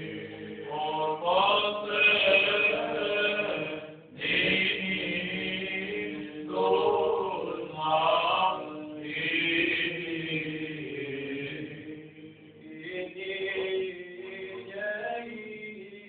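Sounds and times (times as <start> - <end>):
men chanting: 0.0 - 12.0.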